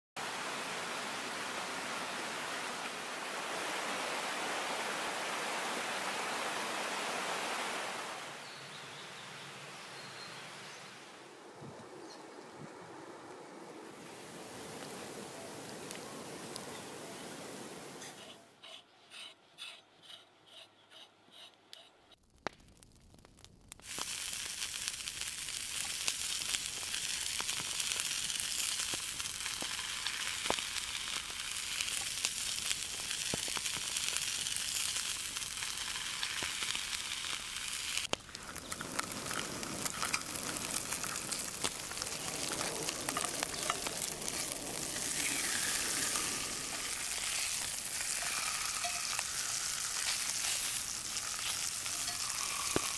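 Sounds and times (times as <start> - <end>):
fish fillets sizzling in a skillet: 23.8 - 52.9.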